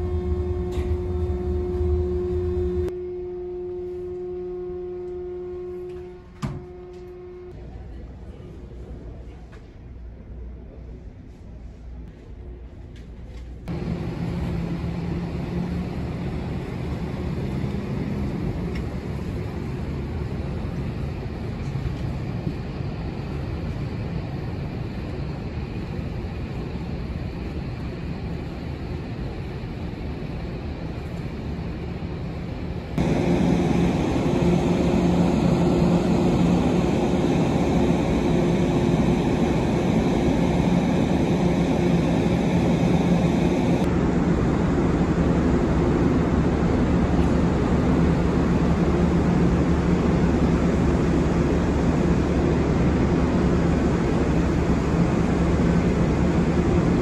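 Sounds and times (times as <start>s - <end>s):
ship engines humming: 0.0s - 7.7s, 28.9s - 43.9s.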